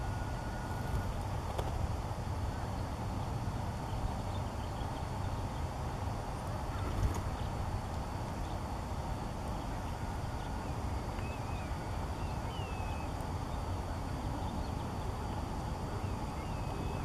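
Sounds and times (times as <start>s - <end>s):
faint wavering high chirps: 10.4s - 17.0s.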